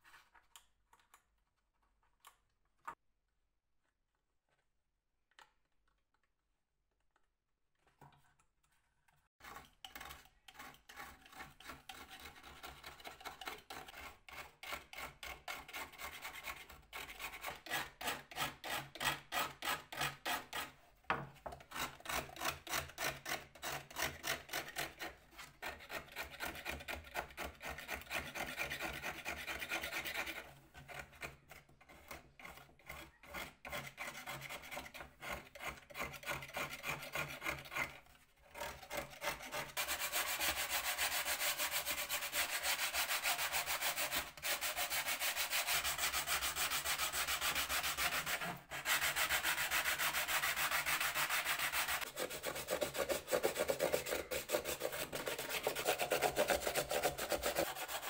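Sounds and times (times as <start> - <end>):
sanding wood by hand: 38.6 - 58.0.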